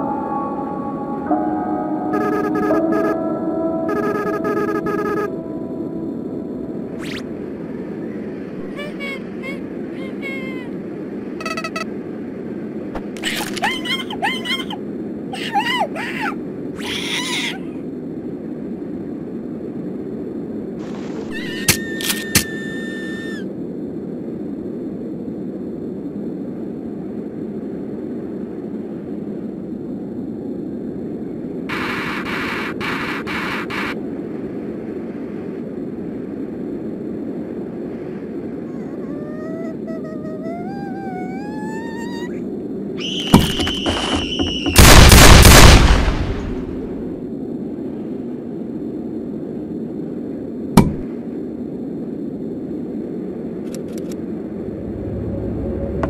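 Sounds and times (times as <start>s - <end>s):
low rumbling drone: 0.0s - 8.8s, 54.2s - 56.0s
steady low rumble: 0.0s - 16.8s, 17.7s - 21.6s, 23.4s - 43.1s, 43.7s - 56.0s.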